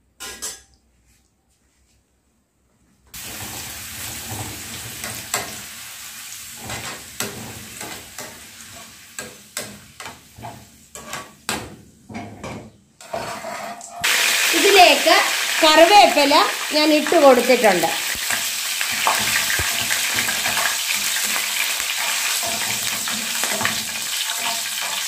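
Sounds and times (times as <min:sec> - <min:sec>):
frying in hot oil sizzle: 0:03.2 - 0:11.8, 0:13.1 - 0:25.0
metal spoon tapping and scraping: 0:19.0 - 0:25.0.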